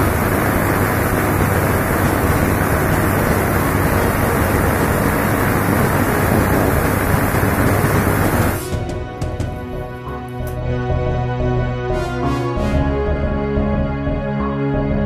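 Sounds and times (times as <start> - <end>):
tesla coil sparks crackling: 0.0 - 8.9
low hum: 0.0 - 11.3.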